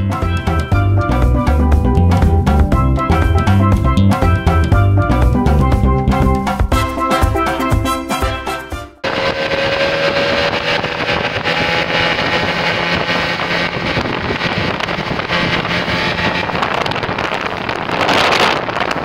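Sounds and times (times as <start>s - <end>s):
outboard motor drone: 9.0s - 19.0s
wind buffeting microphone: 9.0s - 19.0s.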